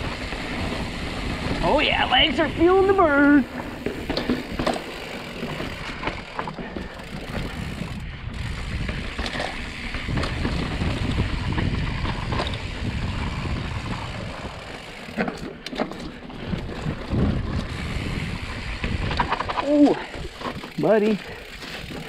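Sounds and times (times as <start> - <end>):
bike clicks and rattles: 0.0 - 22.0
bike tyre noise: 0.0 - 22.0
wind buffeting microphone: 5.3 - 15.1, 16.2 - 22.0.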